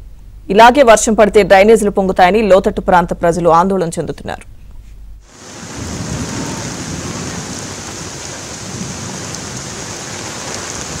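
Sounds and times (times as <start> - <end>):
heavy rain: 5.3 - 11.0.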